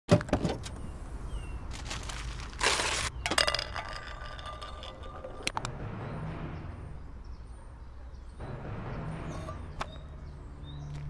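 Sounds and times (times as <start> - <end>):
tin cans dropping onto pavement: 1.7 - 5.6
cans clinking and rolling: 2.6 - 5.7.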